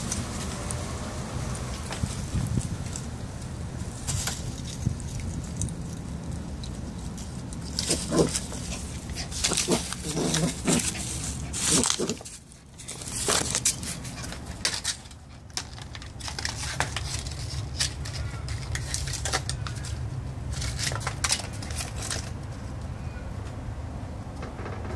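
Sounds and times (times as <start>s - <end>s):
claws and toy scraping floor: 7.0s - 22.8s.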